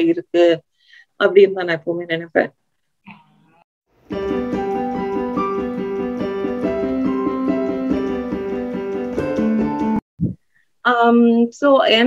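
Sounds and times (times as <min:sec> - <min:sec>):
keyboard music: 0:04.0 - 0:10.0.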